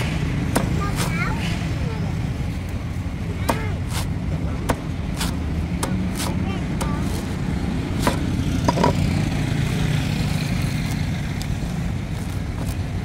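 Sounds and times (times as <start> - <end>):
cleaver chopping coconut husk: 0.0 - 1.2, 3.3 - 9.4.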